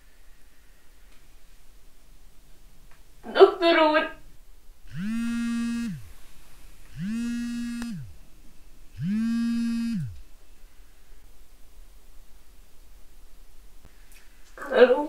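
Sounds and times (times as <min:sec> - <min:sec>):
phone vibrating: 0:04.9 - 0:06.1, 0:06.9 - 0:08.2, 0:09.0 - 0:10.2.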